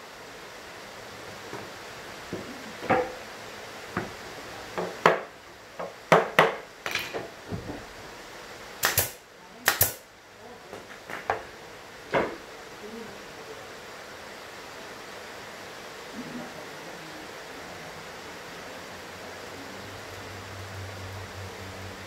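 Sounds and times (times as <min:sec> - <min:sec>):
nail gun shots: 0:08.8 - 0:10.0.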